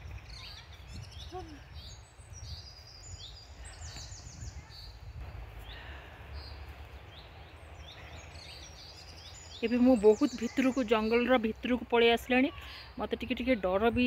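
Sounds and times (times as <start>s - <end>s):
steady low rumble: 0.0s - 10.2s
small birds chirping: 0.0s - 14.0s.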